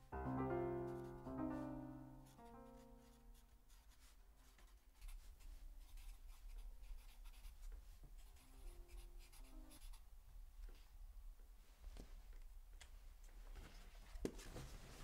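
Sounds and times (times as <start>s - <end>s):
pen scratching on paper: 5.0s - 7.6s.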